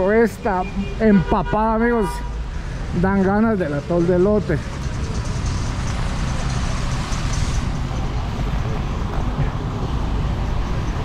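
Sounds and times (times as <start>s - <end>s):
bus and truck engines running: 0.0s - 11.0s
tyres hissing on wet pavement: 4.6s - 8.5s.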